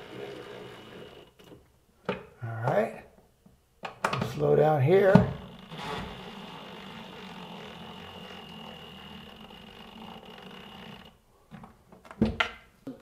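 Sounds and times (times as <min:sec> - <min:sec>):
impact driver running: 0:05.2 - 0:11.2.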